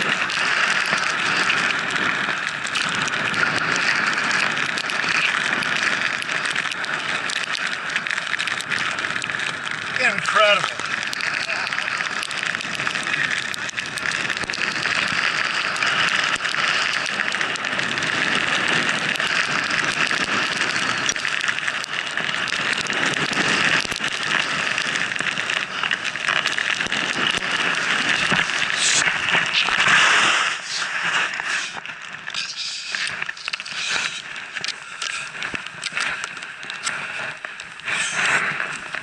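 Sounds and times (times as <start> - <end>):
skis hissing through snow: 26.9 - 36.2, 36.8 - 39.0.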